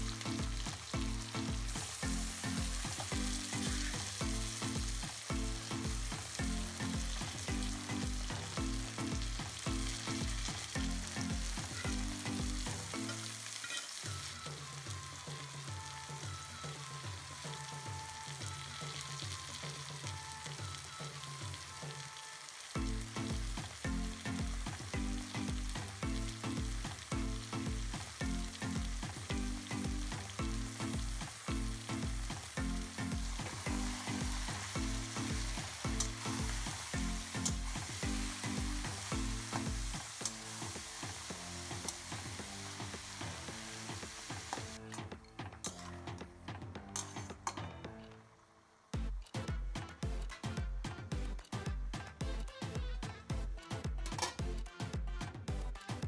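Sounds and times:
vegetables sizzling in a wok: 0.0s - 46.1s
background music with steady beat: 0.0s - 56.0s.

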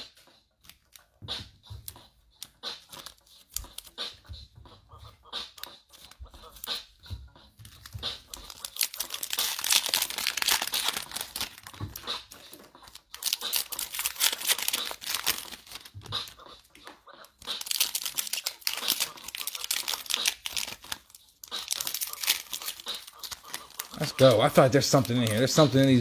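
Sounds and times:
foil wrappers tearing and crinkling: 2.5s - 4.0s, 7.6s - 16.4s, 17.3s - 26.0s.

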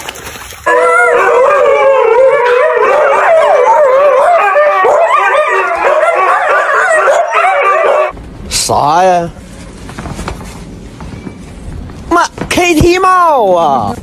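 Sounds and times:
huskies howling: 0.7s - 8.2s.

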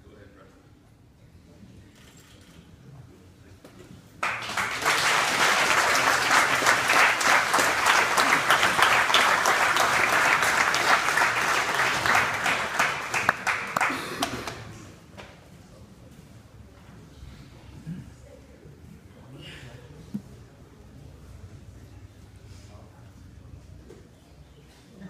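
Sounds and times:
people applauding: 4.2s - 14.8s.

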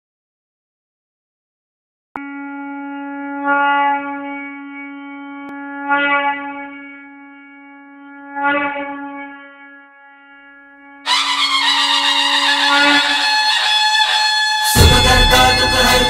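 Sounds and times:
long horn-like note: 2.2s - 16.0s
loud full music: 11.1s - 16.0s
booming swells: 14.7s - 16.0s.

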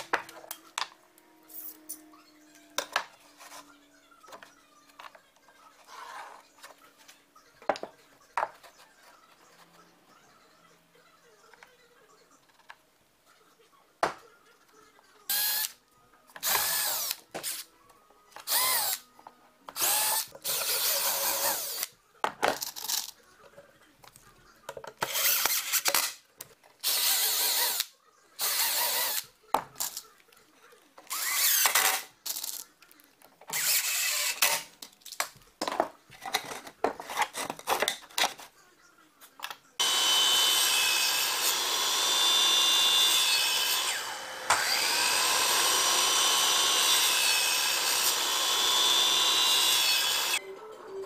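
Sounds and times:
cordless drill driving screws: 18.5s - 19.0s, 31.1s - 31.9s, 33.5s - 34.6s, 39.8s - 50.4s.

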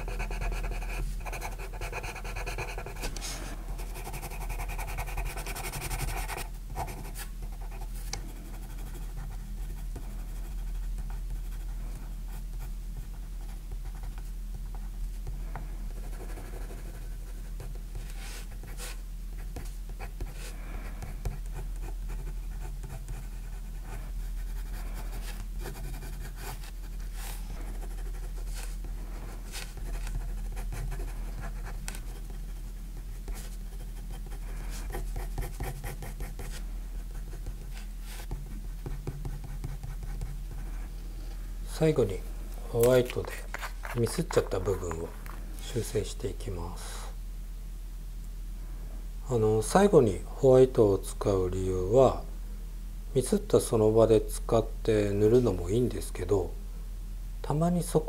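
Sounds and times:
pencil scratching on paper: 0.0s - 11.7s, 15.9s - 28.8s, 29.4s - 40.7s.

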